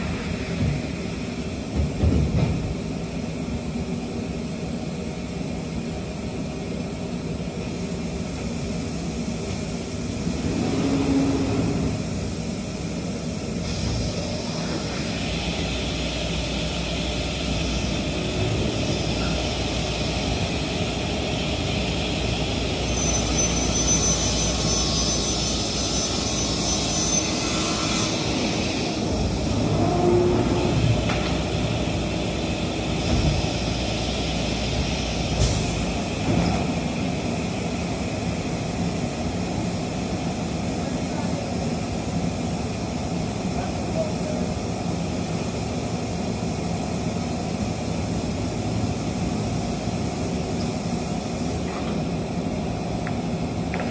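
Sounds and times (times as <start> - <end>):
hiss and deep rumble: 0.0 - 53.9
shop machinery running: 0.0 - 53.9
thin high whine: 22.7 - 29.0.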